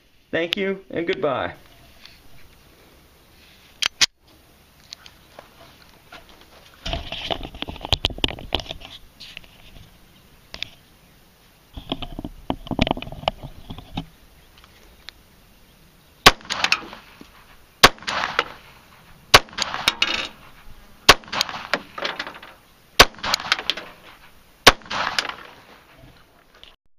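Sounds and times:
rustling: 0:01.6 - 0:11.0, 0:16.2 - 0:26.8
pistol shots with echo: 0:16.2 - 0:17.2, 0:17.8 - 0:20.2, 0:21.1 - 0:22.0, 0:23.0 - 0:25.8.

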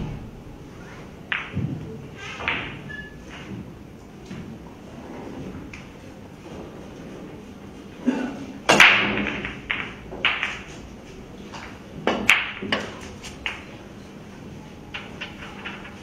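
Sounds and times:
pool balls clacking: 0:00.0 - 0:07.4, 0:08.5 - 0:16.0
cue tip striking ball: 0:01.3 - 0:01.8, 0:08.7 - 0:10.8, 0:11.6 - 0:13.6.

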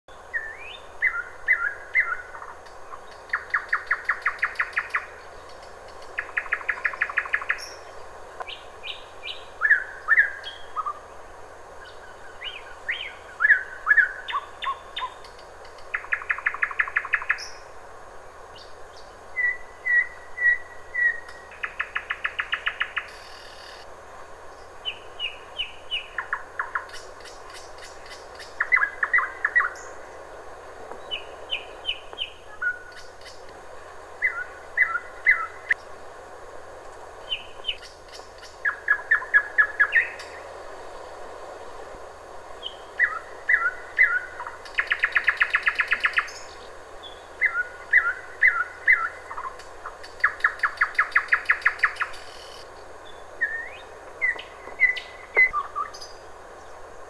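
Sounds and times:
nightingale singing: 0:00.1 - 0:11.2, 0:11.8 - 0:17.7, 0:18.5 - 0:23.9, 0:24.5 - 0:30.3, 0:31.0 - 0:33.5, 0:34.2 - 0:35.9, 0:37.2 - 0:40.5, 0:42.6 - 0:56.8.

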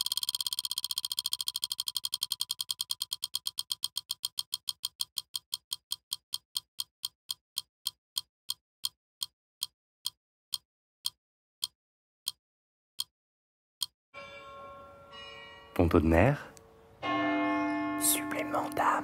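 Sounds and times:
clock-like ticking slowing: 0:00.0 - 0:09.0.

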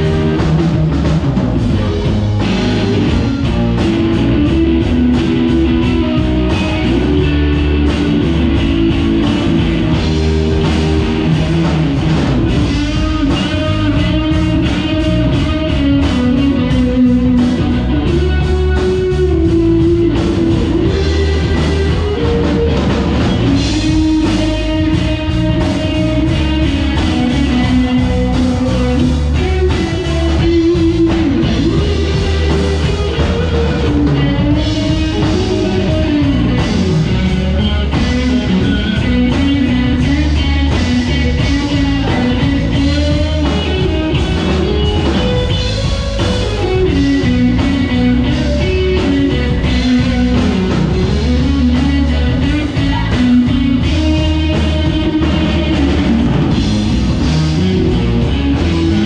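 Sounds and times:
live rock band playing: 0:00.0 - 0:59.0.

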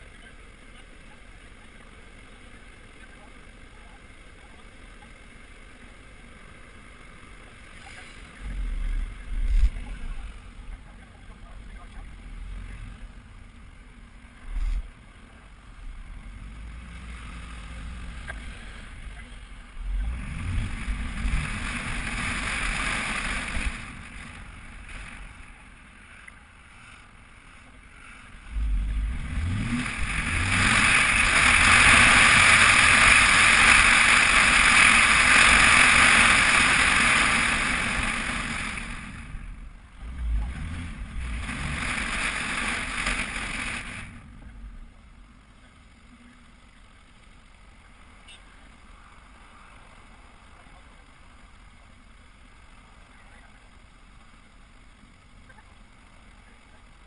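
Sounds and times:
car wash machinery rumble: 0:00.0 - 0:57.0
rushing water spray: 0:16.6 - 0:44.9.

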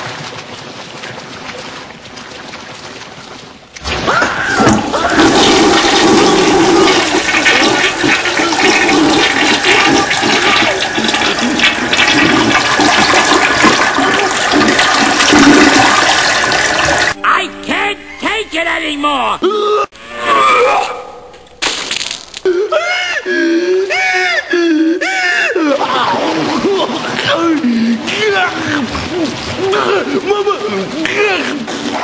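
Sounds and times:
toilet flush rushing water: 0:03.8 - 0:17.2.

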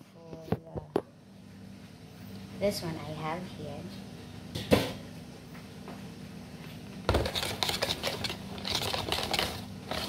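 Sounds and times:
whisk beating batter in bowl: 0:07.1 - 0:10.0.

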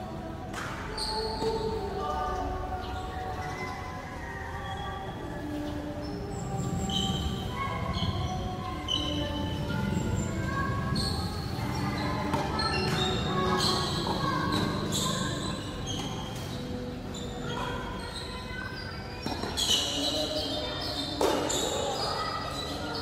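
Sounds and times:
shoe squeaks: 0:00.9 - 0:01.8, 0:06.0 - 0:23.0.

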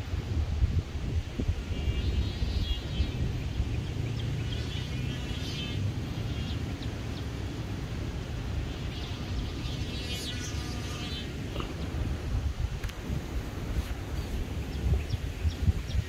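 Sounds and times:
wind buffeting microphone: 0:00.0 - 0:16.0
faint high buzz: 0:01.3 - 0:14.8.

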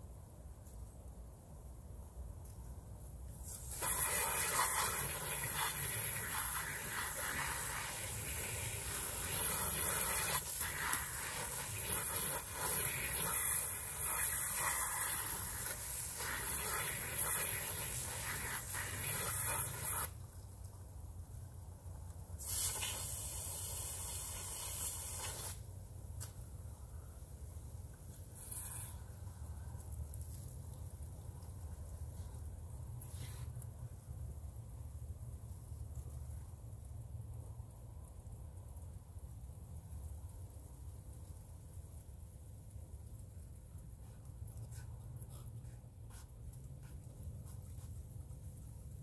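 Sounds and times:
hose nozzle spraying water: 0:03.4 - 0:20.2, 0:22.4 - 0:25.6.

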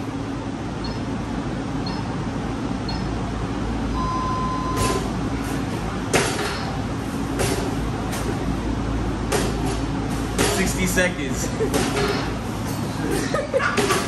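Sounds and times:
steady low hum: 0:00.0 - 0:14.0
electronic beep: 0:00.8 - 0:01.1, 0:01.8 - 0:02.1, 0:02.8 - 0:03.2, 0:04.0 - 0:05.0.

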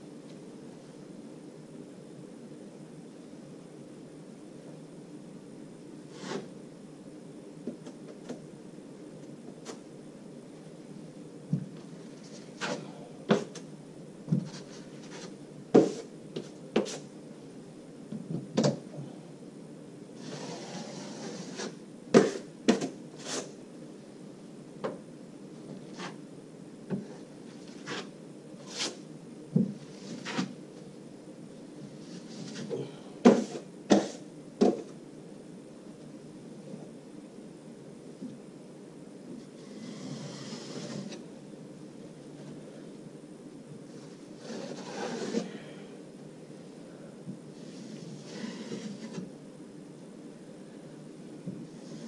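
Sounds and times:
trowel blade scraping wall: 0:20.2 - 0:23.5, 0:39.6 - 0:41.2, 0:44.4 - 0:45.6, 0:47.8 - 0:49.3.

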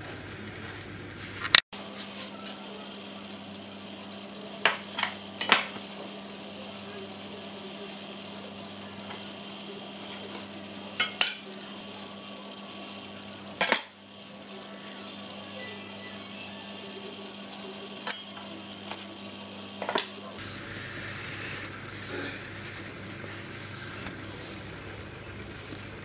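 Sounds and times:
steady low hum: 0:16.9 - 0:26.0.

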